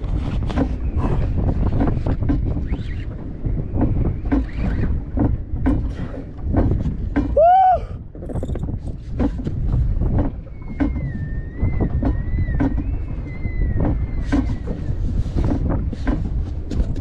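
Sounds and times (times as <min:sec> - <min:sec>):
knocks from hull and gear: 0:00.0 - 0:07.4, 0:08.2 - 0:13.1
wind buffeting microphone: 0:00.0 - 0:17.0.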